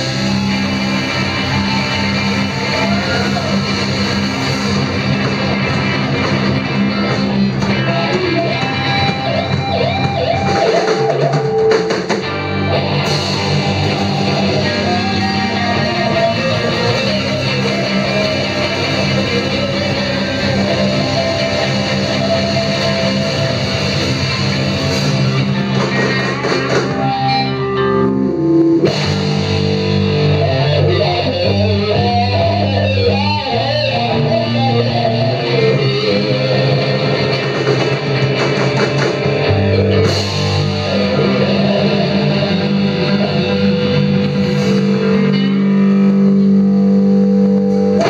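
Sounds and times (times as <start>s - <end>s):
bass guitar: 0.0s - 48.0s
drum kit: 0.0s - 48.0s
electric guitar: 0.0s - 48.0s.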